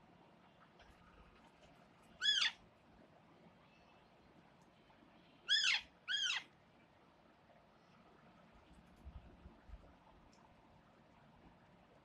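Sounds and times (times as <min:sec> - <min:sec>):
parakeet shrill calls: 0:02.2 - 0:02.6, 0:05.5 - 0:06.4.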